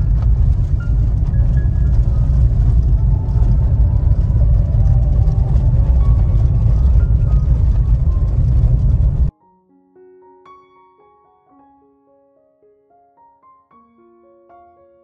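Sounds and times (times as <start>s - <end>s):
car road and engine rumble: 0.0s - 9.3s
faint song from car stereo: 0.0s - 9.3s.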